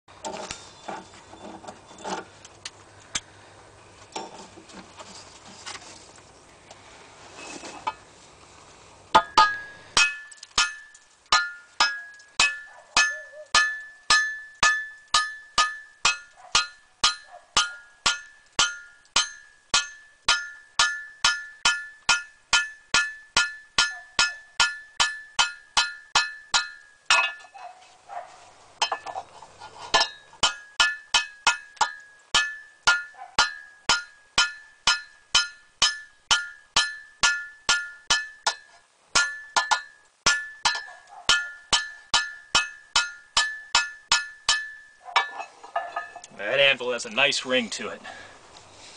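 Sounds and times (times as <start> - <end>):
hammer striking metal on anvil: 9.2 - 27.5, 30.0 - 46.3.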